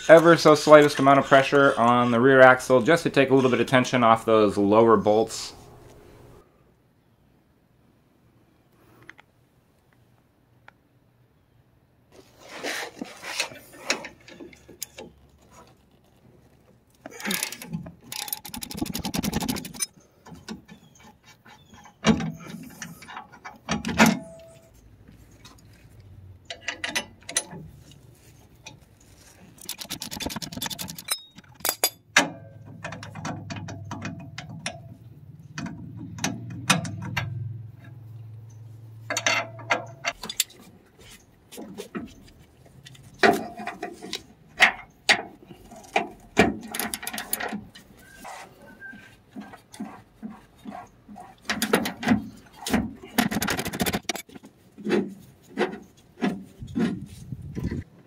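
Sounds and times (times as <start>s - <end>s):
wrenches clinking on bolts: 17.1s - 24.7s, 26.4s - 27.7s, 29.4s - 37.5s, 38.5s - 40.7s, 42.9s - 48.4s
hand ratchet clicking: 17.2s - 19.9s, 29.6s - 31.9s, 53.2s - 54.2s.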